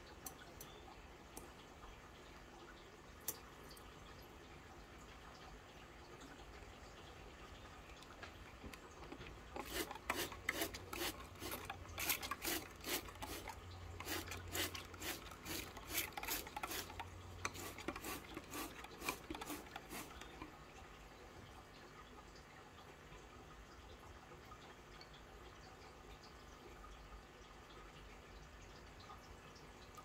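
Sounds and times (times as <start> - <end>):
spray bottle spritzing: 9.6 - 20.4.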